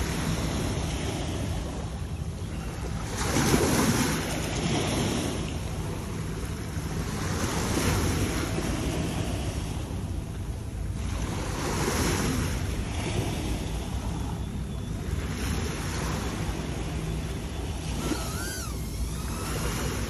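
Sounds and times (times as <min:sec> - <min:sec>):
wind buffeting microphone: 0:10.9 - 0:20.0
surf washing against rocks: 0:15.2 - 0:20.0
wavering whistle-like tone: 0:16.9 - 0:20.0.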